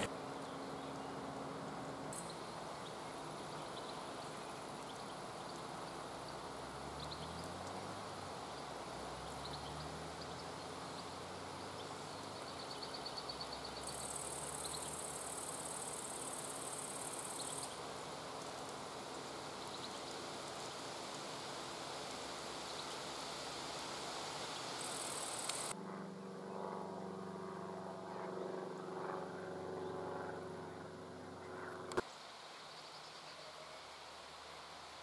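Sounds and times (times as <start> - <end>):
hiss of water and breeze: 0.0 - 25.8, 32.0 - 35.0
high-pitched insect trill: 9.3 - 25.7.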